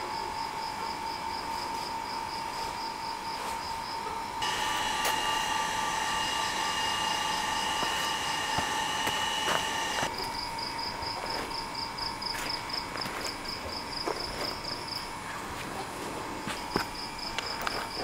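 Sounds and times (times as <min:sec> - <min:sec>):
high hum with overtones: 0:04.4 - 0:10.6.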